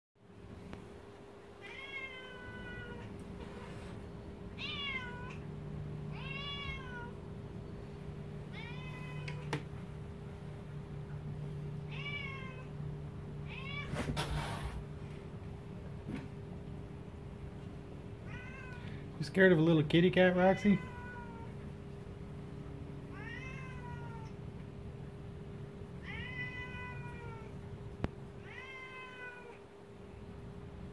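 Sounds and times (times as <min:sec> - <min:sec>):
steady low hum: 0:00.2 - 0:30.9
cat meowing: 0:01.6 - 0:03.2, 0:04.6 - 0:05.4, 0:06.1 - 0:07.2, 0:08.5 - 0:09.6, 0:11.8 - 0:12.8, 0:13.4 - 0:14.1, 0:18.2 - 0:19.0, 0:20.6 - 0:21.6, 0:23.1 - 0:24.4, 0:26.0 - 0:27.6, 0:28.4 - 0:29.6.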